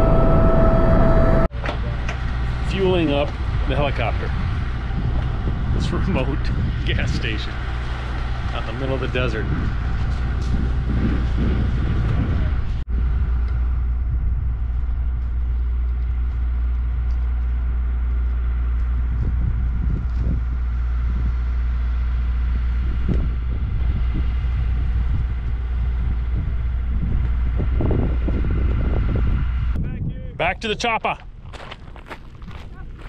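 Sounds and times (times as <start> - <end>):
helicopter engine and rotor running: 0.0 - 29.8.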